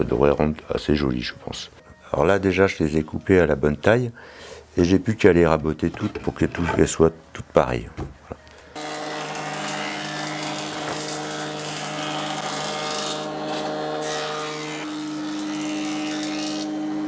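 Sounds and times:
cutterhead planing wood: 8.8s - 17.0s.

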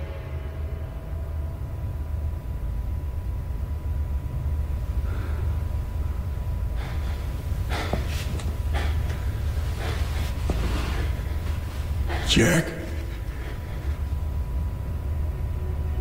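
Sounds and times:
low rumbling drone: 0.0s - 16.0s
sharp gasping breaths: 6.8s - 14.1s.

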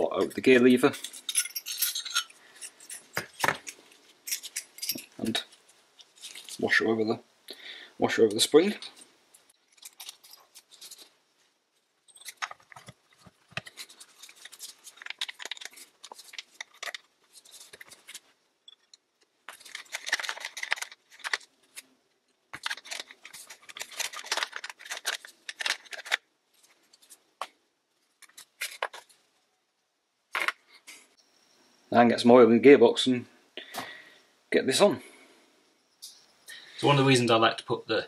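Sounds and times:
metal parts clicking and scraping: 0.1s - 6.6s, 8.7s - 11.2s, 11.9s - 21.9s, 22.5s - 26.2s.

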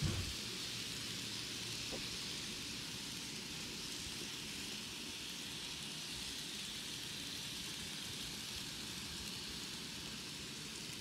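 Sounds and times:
low uneven rumble: 0.0s - 0.4s
model train wheels on track: 0.0s - 11.0s.

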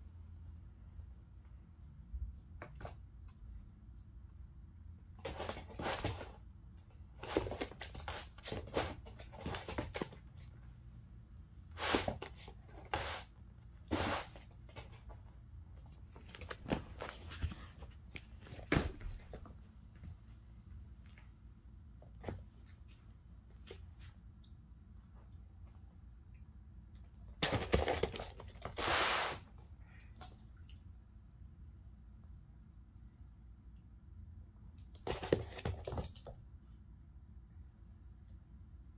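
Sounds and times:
kitten claws scrabbling on mat: 34.8s - 36.4s.

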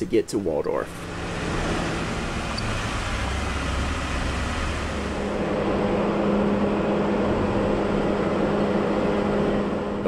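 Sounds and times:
off-road vehicle engine running: 0.8s - 10.0s.

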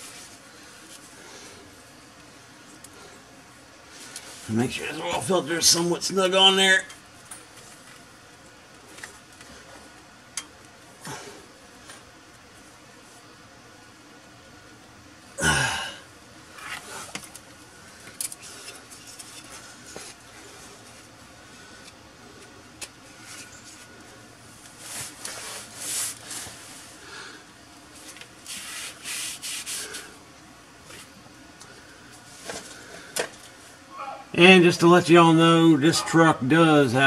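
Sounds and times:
rag rubbing and scraping: 28.4s - 30.1s.

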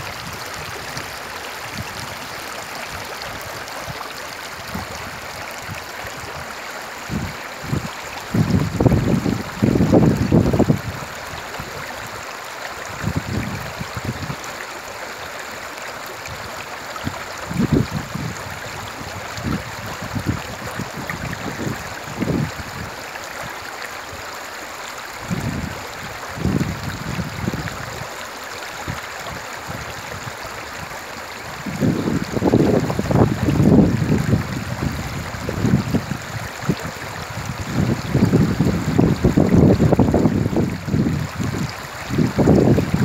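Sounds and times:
wind rumbling on microphone: 0.0s - 11.8s, 12.9s - 14.4s, 16.3s - 23.0s, 25.2s - 28.1s, 28.9s - 43.0s
river babbling over stones: 0.0s - 43.0s.

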